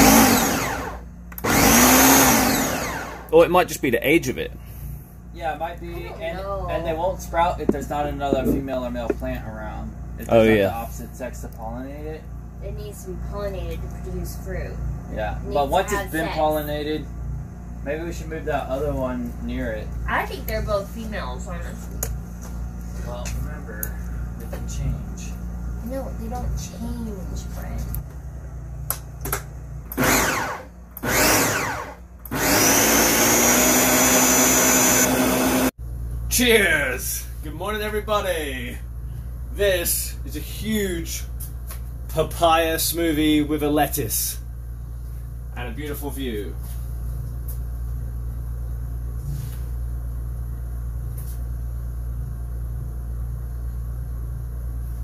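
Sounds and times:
blender motor whining: 0.0s - 3.4s, 29.9s - 35.7s.

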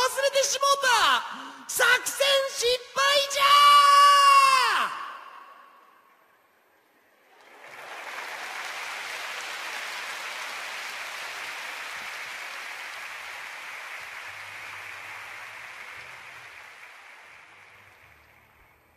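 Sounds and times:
audience applauding: 7.2s - 18.9s.

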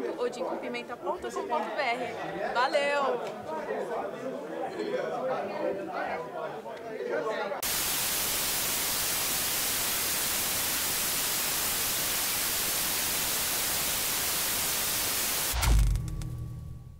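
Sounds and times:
television static hiss: 7.6s - 15.9s
low thump: 15.5s - 16.9s.

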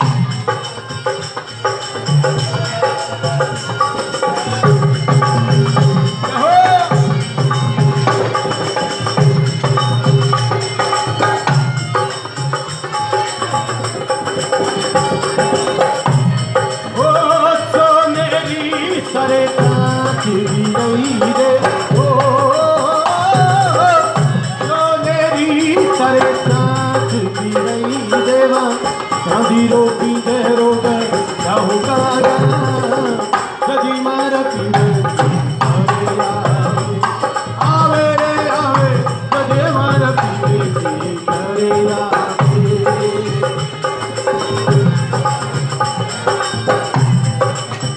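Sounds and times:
hand percussion: 0.0s - 47.9s
folk singing: 15.4s - 45.3s.

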